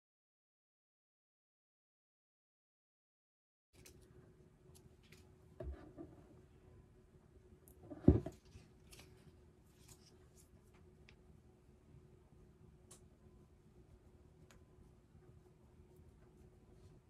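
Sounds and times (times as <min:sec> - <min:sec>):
dull knock: 0:08.0 - 0:08.3.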